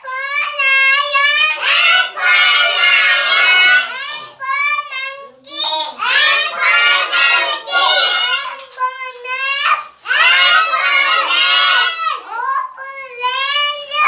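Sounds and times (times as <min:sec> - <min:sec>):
toddler shouting: 0:00.0 - 0:14.0.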